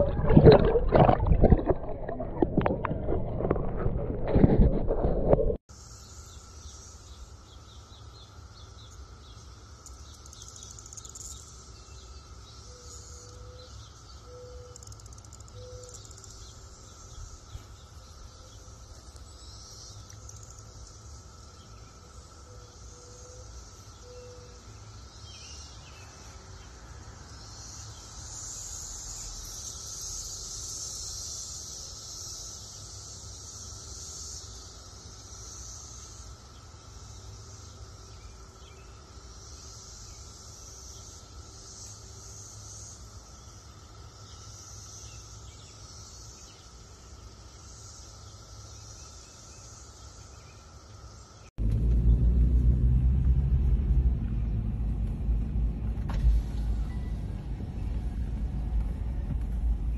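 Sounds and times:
burst of wind and water noise: 0.0 - 5.6
low rumble: 0.0 - 5.6, 51.6 - 59.9
insects buzzing: 5.8 - 51.5.

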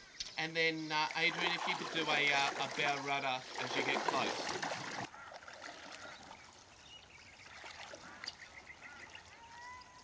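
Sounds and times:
faint bird chirps: 5.1 - 10.0.

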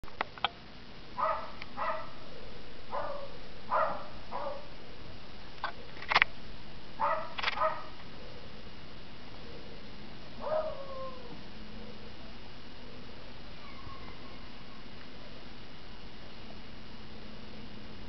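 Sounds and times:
sharp clicks: 0.1 - 0.6, 5.6 - 6.3, 7.3 - 7.6
dogs barking sharply: 1.2 - 2.2, 2.9 - 4.7, 7.0 - 8.0, 10.4 - 10.8.

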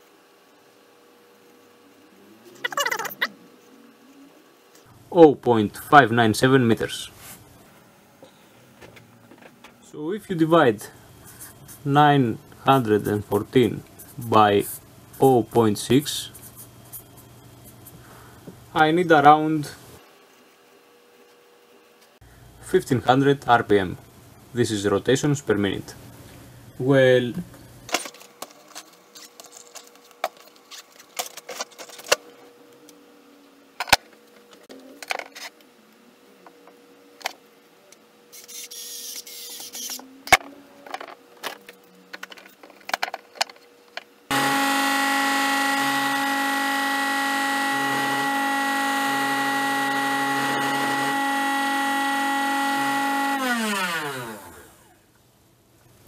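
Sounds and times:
small motor high-pitched whine: 38.3 - 40.2, 44.3 - 55.1.

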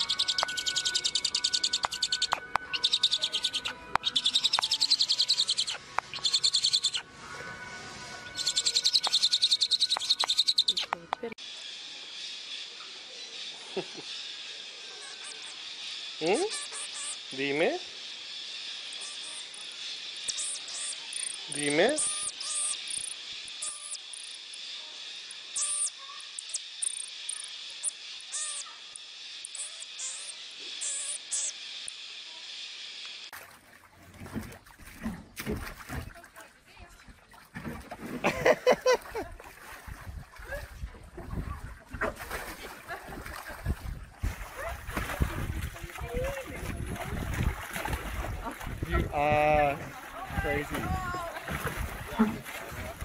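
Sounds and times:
bird chirping trill: 0.0 - 7.1, 8.2 - 32.7
sharp clicks: 1.6 - 2.9, 3.6 - 4.9, 8.9 - 11.3
steady high hiss: 11.2 - 33.3.

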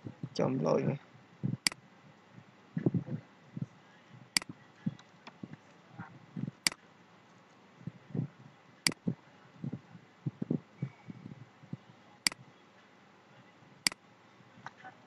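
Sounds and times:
computer mouse clicking: 4.4 - 5.4.

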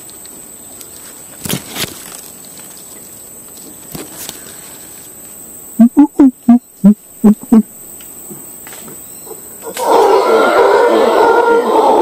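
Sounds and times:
man imitating monkey grunts: 5.8 - 7.7
howler monkeys roaring chorus: 9.3 - 12.0.

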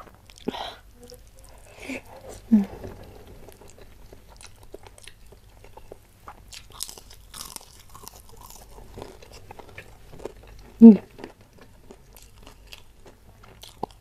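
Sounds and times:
close chewing and mouth sounds: 0.0 - 14.0.

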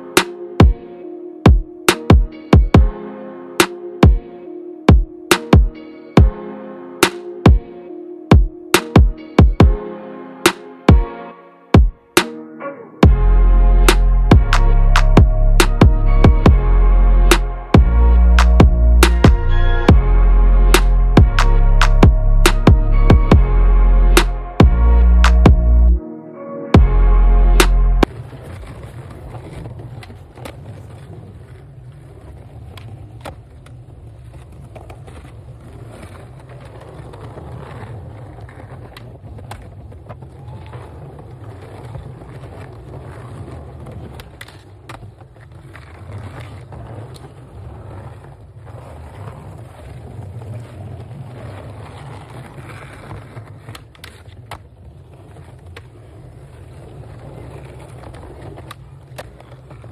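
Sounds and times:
skateboard wheels rolling on stone: 0.0 - 12.3, 13.0 - 26.0, 26.8 - 59.9
skateboard clacks and landings: 3.6 - 6.4, 7.0 - 9.8, 27.6 - 59.9.

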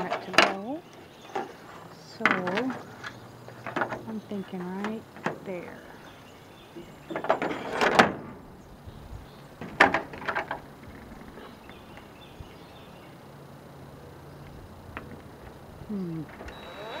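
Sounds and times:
metal gutter knocking and scraping: 0.0 - 5.6, 6.8 - 8.4, 9.6 - 11.2.

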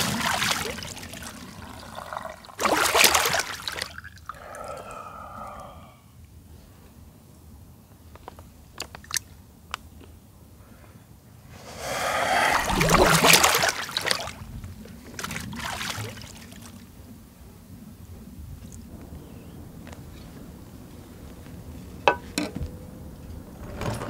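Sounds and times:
water splashing and sloshing: 0.0 - 5.3, 11.5 - 16.9
sharp water drips: 0.0 - 5.7.

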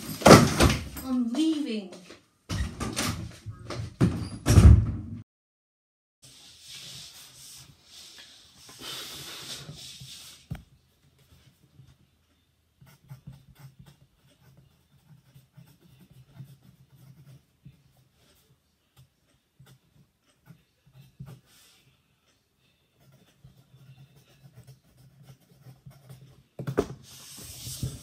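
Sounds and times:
pen scratching on paper: 12.8 - 21.9, 22.9 - 26.4.

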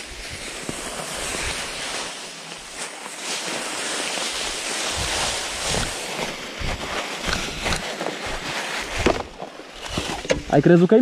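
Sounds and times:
dry leaves rustling and crunching: 0.0 - 11.0
wind noise on microphone: 4.3 - 10.6.

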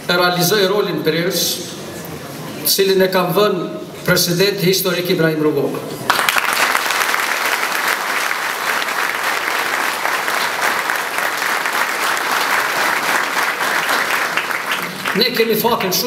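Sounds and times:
audience applauding: 6.1 - 15.6.

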